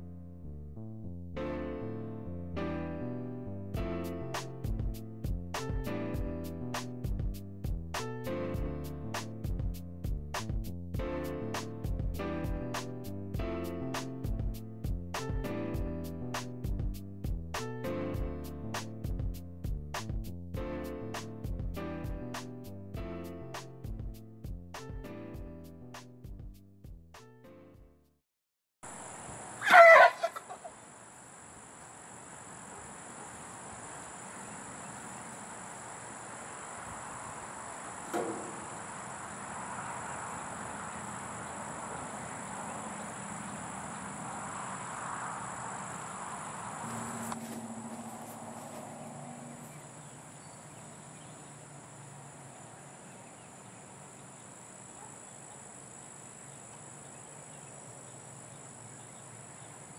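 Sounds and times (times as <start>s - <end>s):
insects chirring: 28.9s - 59.9s.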